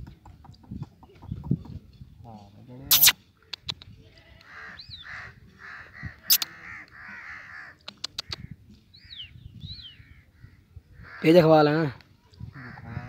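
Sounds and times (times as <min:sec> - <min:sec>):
sharp bird clicks: 0:02.9 - 0:03.9, 0:06.2 - 0:07.0, 0:07.8 - 0:08.6.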